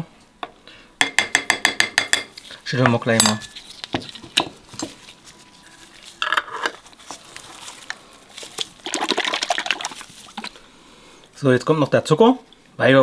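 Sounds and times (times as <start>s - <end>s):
container of liquid shaking: 6.8s - 10.6s.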